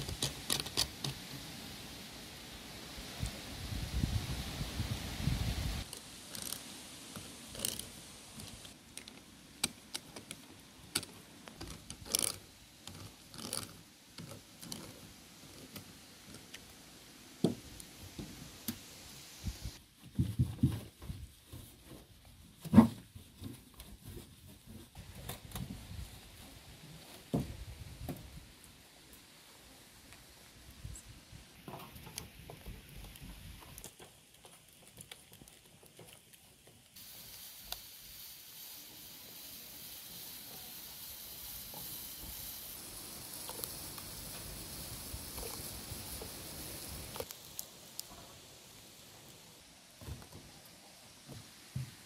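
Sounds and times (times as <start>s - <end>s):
small metal clicks and scrapes: 0.0s - 1.2s, 5.8s - 16.7s, 40.4s - 48.2s
hand-cranked seaming tool turning: 11.0s - 15.0s.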